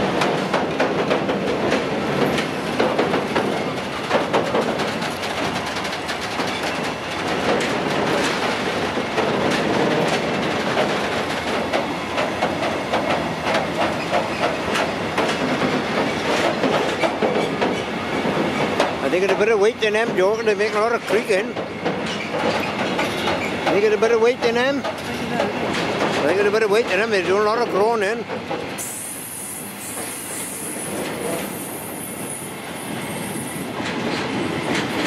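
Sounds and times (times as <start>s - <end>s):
wagons creaking and groaning: 0.0s - 28.5s
train wheels clattering over rail joints: 0.0s - 35.0s.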